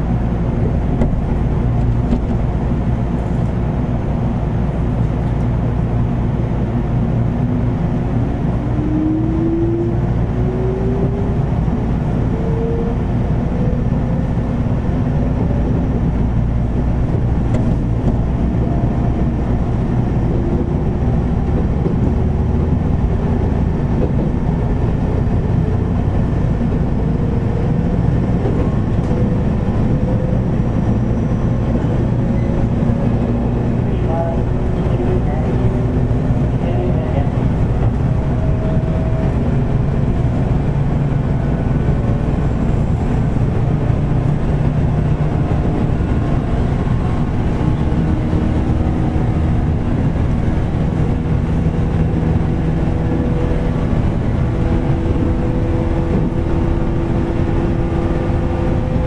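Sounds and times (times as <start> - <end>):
train wheel-and-rail rumble: 0.0 - 59.0.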